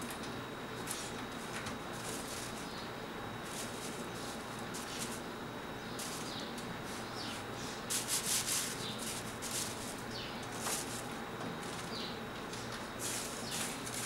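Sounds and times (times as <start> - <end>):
crepe paper rustling: 0.0 - 2.7, 3.4 - 5.3, 6.9 - 14.0
wooden skewers rubbing: 6.9 - 11.9.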